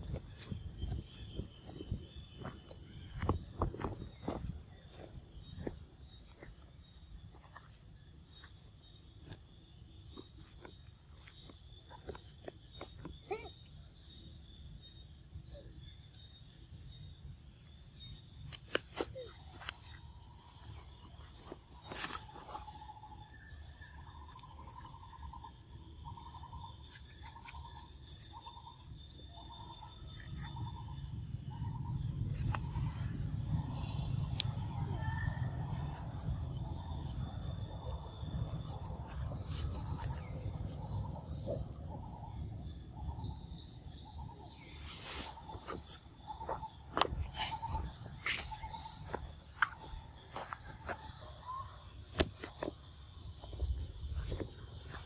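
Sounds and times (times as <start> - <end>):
high insect drone: 0.0 - 55.0
low rumble: 30.6 - 43.4.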